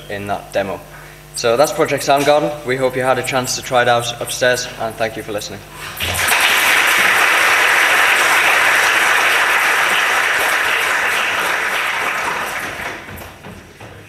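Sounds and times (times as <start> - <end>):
audience applauding: 6.0 - 13.4.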